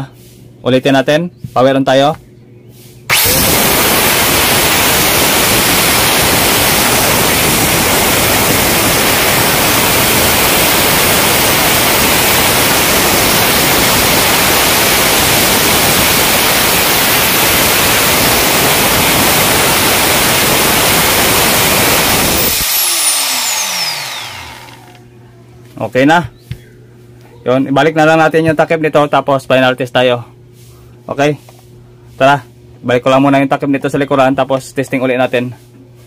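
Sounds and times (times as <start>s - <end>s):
angle grinder whirring: 3.1s - 25.1s.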